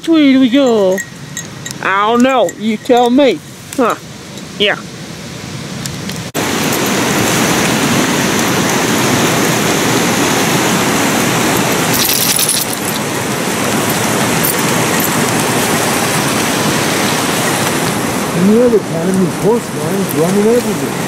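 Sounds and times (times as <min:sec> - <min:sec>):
creek rushing: 0:00.0 - 0:21.0
crunchy clinking: 0:00.5 - 0:03.3, 0:11.3 - 0:16.3.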